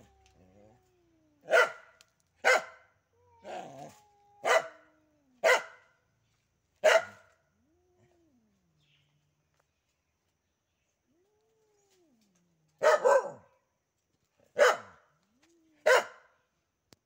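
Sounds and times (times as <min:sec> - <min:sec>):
cat caterwauling: 0:00.0 - 0:01.6, 0:03.2 - 0:05.4
dog barking sharply: 0:01.5 - 0:02.8, 0:05.4 - 0:05.8, 0:06.8 - 0:07.2, 0:12.8 - 0:13.4, 0:14.6 - 0:15.0, 0:15.9 - 0:16.2.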